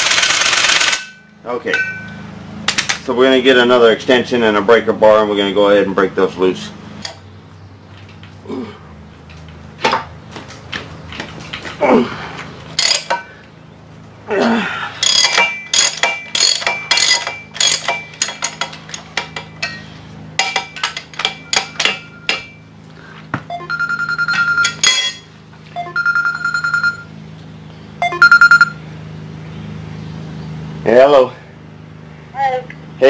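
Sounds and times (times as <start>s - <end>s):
steel tools clinking: 15.0s - 22.6s, 24.6s - 25.3s
phone ringing: 23.5s - 24.8s, 25.7s - 27.2s, 28.0s - 28.8s.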